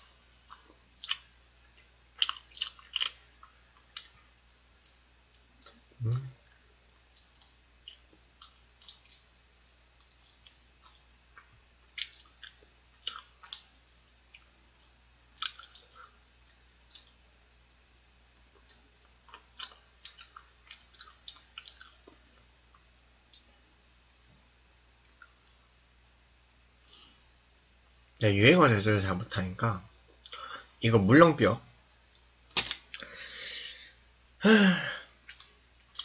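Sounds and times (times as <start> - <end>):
chewing mouth clicks and smacks: 0.4 - 9.3, 10.0 - 13.7, 14.3 - 17.2, 18.6 - 23.6, 35.3 - 36.0
meat crackling pulled apart: 32.5 - 32.8.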